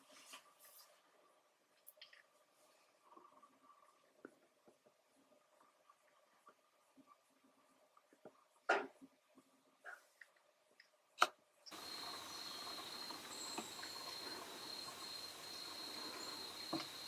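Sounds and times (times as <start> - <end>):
outdoor background noise: 0.0 - 17.0
high insect trill: 11.7 - 17.0.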